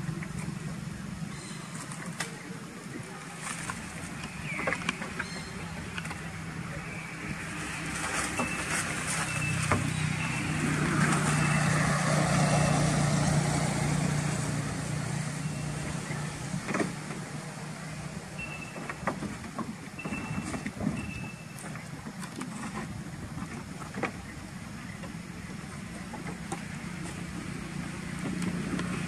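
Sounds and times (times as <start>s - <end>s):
vehicle passing by: 3.2s - 18.6s, 25.5s - 29.0s.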